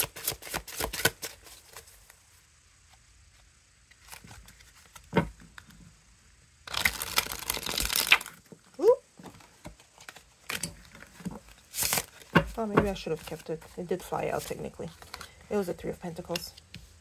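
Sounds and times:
cards riffle-shuffled: 0.0s - 2.2s, 6.7s - 15.3s.

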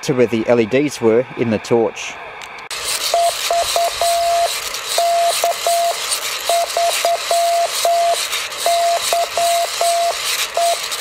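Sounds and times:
constant radio hiss: 0.0s - 11.0s
morse code tone: 3.0s - 11.0s.

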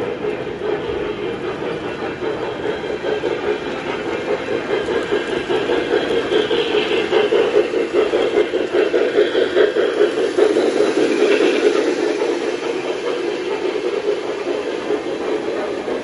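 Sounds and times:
model train running on track: 0.0s - 16.0s.

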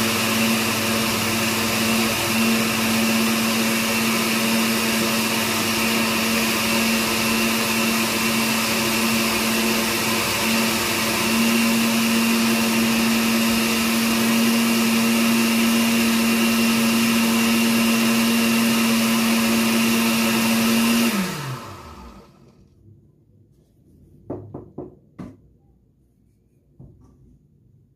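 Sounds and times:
blender motor running: 0.0s - 22.5s.

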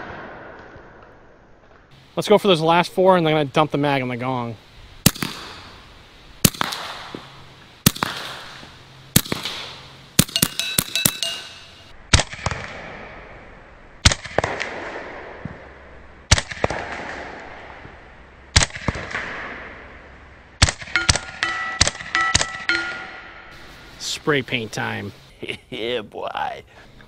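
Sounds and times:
air pistol shots: 5.0s - 5.6s, 6.4s - 7.1s, 7.8s - 8.6s, 9.2s - 12.8s, 14.0s - 15.1s, 16.3s - 17.4s, 18.6s - 19.5s, 20.6s - 22.6s
steel gong ringing: 21.0s - 23.5s.

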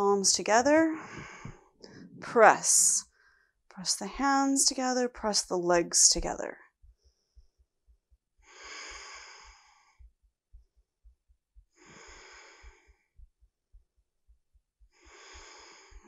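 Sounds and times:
woman breathing slowly: 1.0s - 2.2s, 3.1s - 3.6s, 8.4s - 10.1s, 11.8s - 13.3s, 14.9s - 16.0s.

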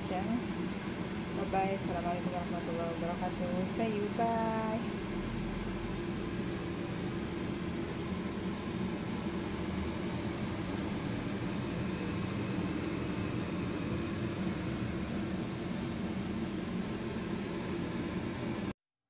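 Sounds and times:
steady mechanical hum: 0.0s - 18.8s.

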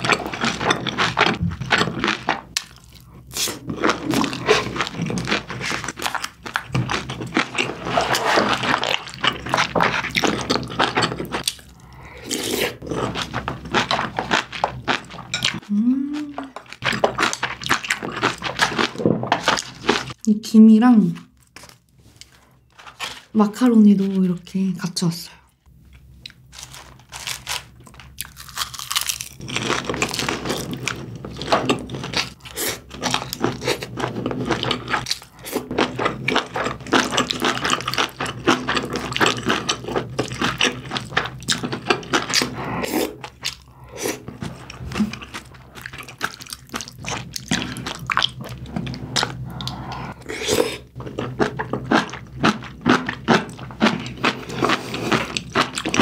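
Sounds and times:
person chewing crunchy food: 0.0s - 20.2s, 25.9s - 56.0s.

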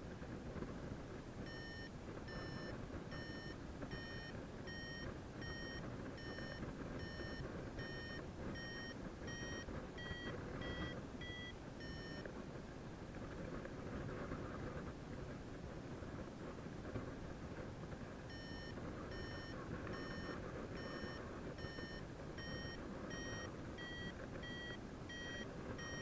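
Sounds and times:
variometer short beeps: 1.5s - 12.2s, 18.3s - 26.0s.

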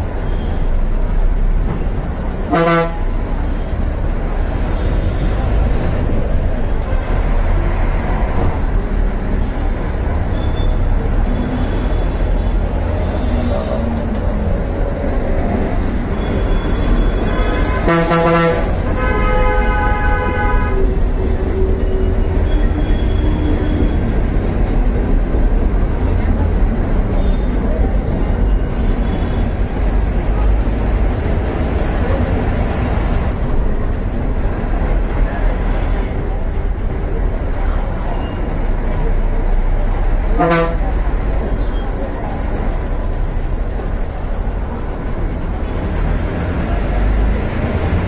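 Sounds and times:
bus engine rumbling: 0.0s - 48.0s
street traffic: 0.0s - 48.0s
vehicle horns honking: 2.5s - 3.1s, 16.2s - 20.8s, 40.3s - 40.9s.

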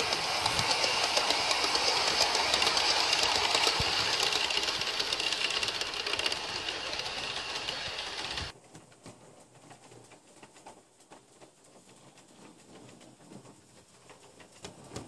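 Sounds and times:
model train motor whir: 0.0s - 8.5s
wheels clattering over rail joints: 0.0s - 8.6s.

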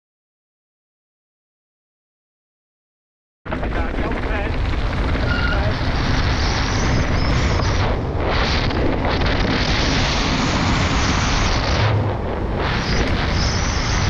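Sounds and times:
bike tyres rolling over gravel: 3.5s - 14.0s
wind noise on microphone: 3.5s - 14.0s.

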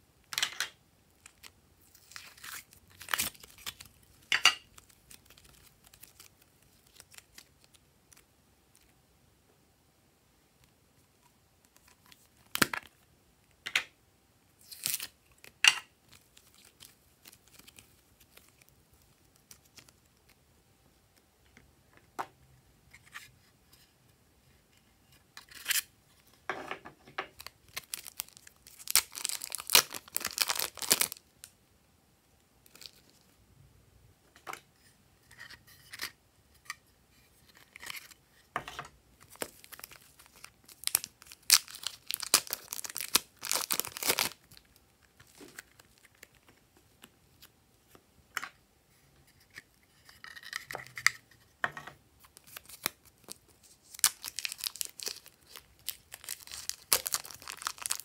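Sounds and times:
crinkling noise: 1.1s - 9.0s, 14.6s - 20.4s, 27.3s - 31.5s, 39.2s - 48.0s, 52.2s - 58.0s.

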